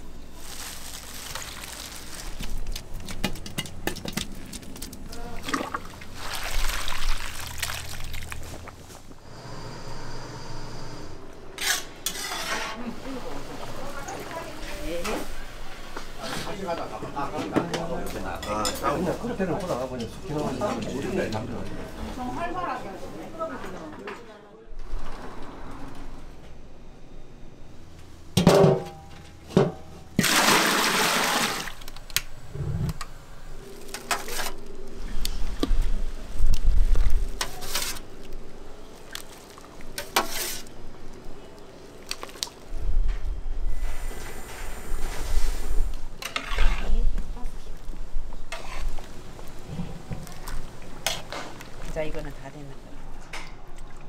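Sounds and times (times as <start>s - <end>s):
liquid pouring into a pot: 5.4s - 8.7s.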